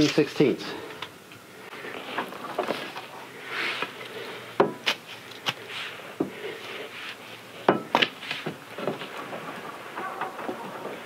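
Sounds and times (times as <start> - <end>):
wood rubbing and scraping: 0.8 - 11.0
knocks of wood and iron: 4.5 - 5.0, 7.6 - 11.0.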